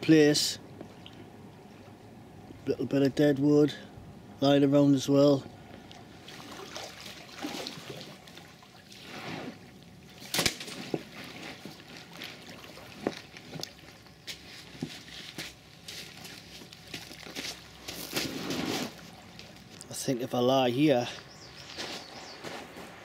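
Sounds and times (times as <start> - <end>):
water lapping at shingle shore: 6.2 - 14.5.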